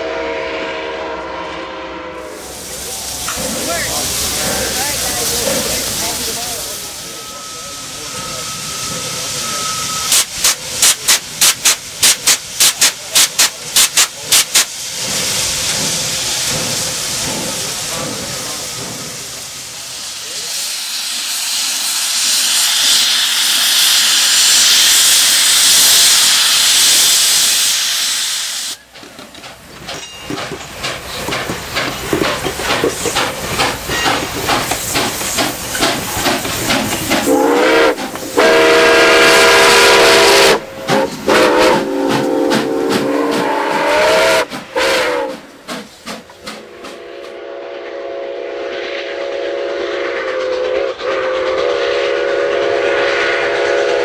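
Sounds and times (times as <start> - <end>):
steam locomotive exhaust chuffs: 0.0 - 54.0
steam hissing: 2.2 - 54.0
chime whistle blasts: 6.9 - 10.1.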